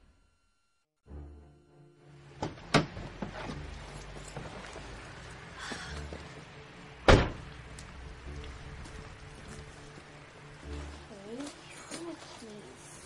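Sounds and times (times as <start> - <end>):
heavy thud: 7.1 - 7.5.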